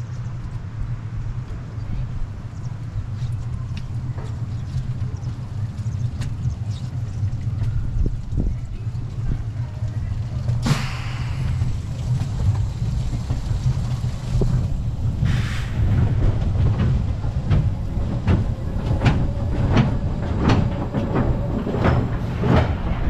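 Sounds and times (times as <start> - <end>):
roller coaster wheels rumbling: 0.0 - 23.0
short hiss: 10.6 - 11.6, 15.2 - 15.8.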